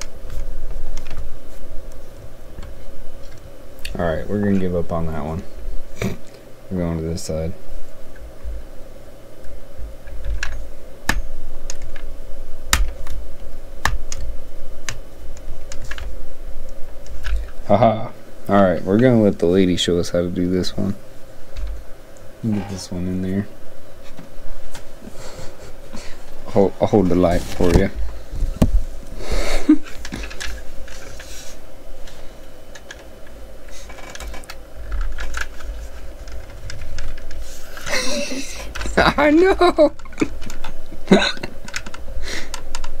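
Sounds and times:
plastic parts clicking and tapping: 33.8 - 37.4, 40.0 - 43.0.

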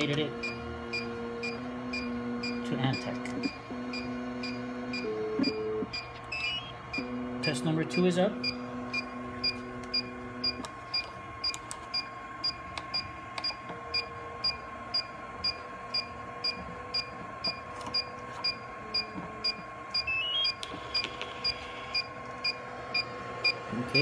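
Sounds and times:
brief printer buzz: 0.0 - 24.0
short high alarm beeps: 3.9 - 7.6, 17.0 - 22.6.

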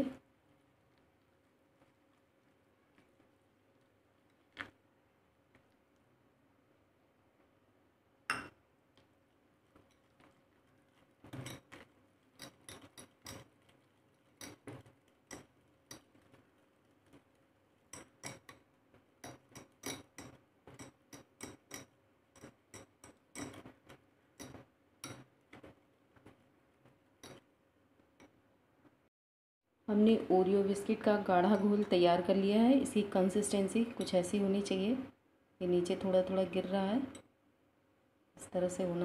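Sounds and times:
whisk clinking against glass bowl: 12.4 - 13.5, 17.9 - 18.6, 19.2 - 23.7.

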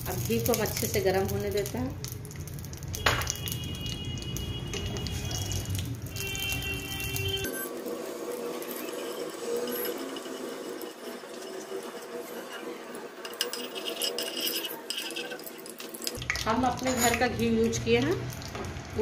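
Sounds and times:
light sizzle: 0.0 - 19.0
spatula scraping a pan: 7.8 - 16.1.

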